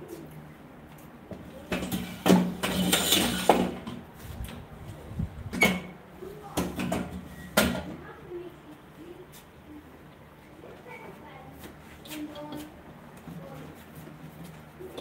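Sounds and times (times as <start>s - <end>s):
chair scraping on tiled floor: 1.7s - 4.0s.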